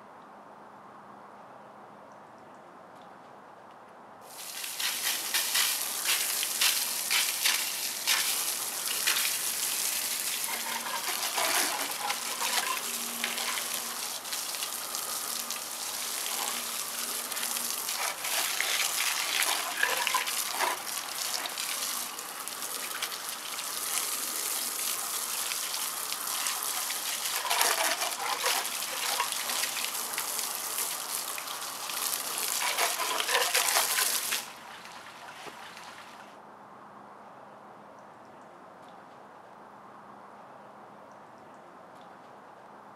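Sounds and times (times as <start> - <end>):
water spraying on a steel wheel: 4.3 - 36.1.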